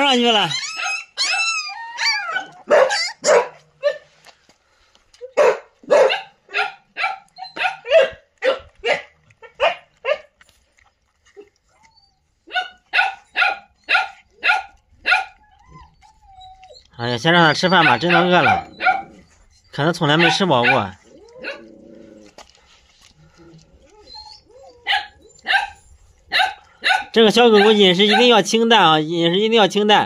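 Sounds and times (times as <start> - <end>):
dog whining: 0.4 - 4.0, 11.4 - 22.3, 23.3 - 28.3
dog barking: 2.3 - 4.1, 5.4 - 10.3, 12.5 - 15.4, 17.7 - 19.2, 20.1 - 21.6, 24.8 - 28.4.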